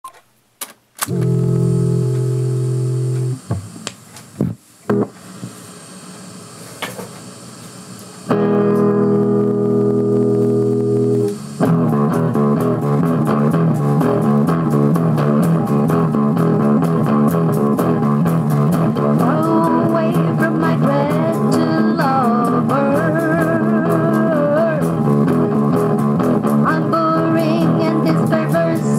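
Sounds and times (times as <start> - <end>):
electric guitar riff: 1.0 - 6.4, 7.8 - 28.9
electric guitar chord ringing: 1.1 - 3.9, 4.9 - 5.2, 8.1 - 28.9
person singing: 18.9 - 25.2, 26.4 - 28.9.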